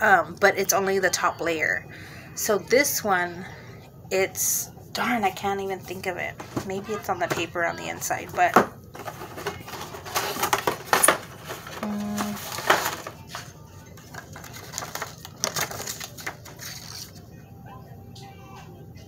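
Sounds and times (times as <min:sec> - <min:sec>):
box and paper rustling: 0:08.3 - 0:17.2.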